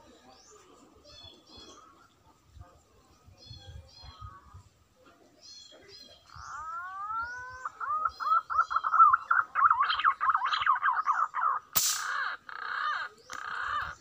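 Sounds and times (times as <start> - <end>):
pigeon whistling song: 6.3 - 11.6
rifle shot: 11.8 - 12.2.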